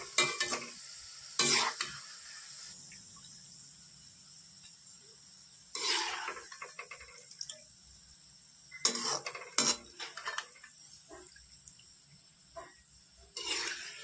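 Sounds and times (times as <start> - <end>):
metal ladle scraping a pan: 1.4 - 2.0, 5.7 - 7.1, 8.7 - 11.2, 12.6 - 14.0.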